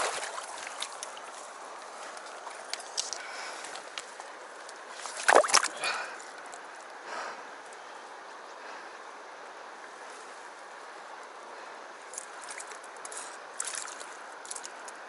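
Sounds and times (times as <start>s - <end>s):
splash in water: 0.0s - 1.0s, 5.0s - 5.9s
stream running over rocks: 0.0s - 7.0s.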